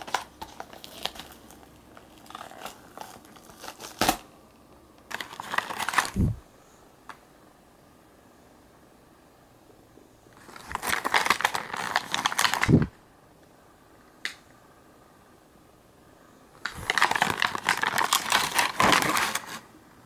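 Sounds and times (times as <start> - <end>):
crinkling and rustling: 0.0 - 4.3, 5.0 - 6.4, 10.3 - 12.9, 16.6 - 19.7.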